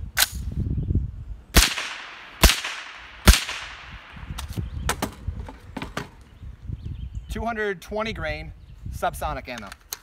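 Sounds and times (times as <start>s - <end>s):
suppressed gunshots with echo: 1.6s - 4.4s.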